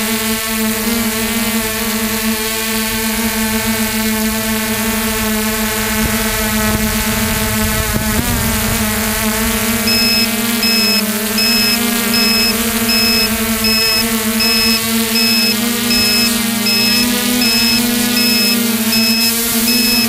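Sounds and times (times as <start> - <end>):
helicopter motor and rotor whine: 9.9 - 20.0.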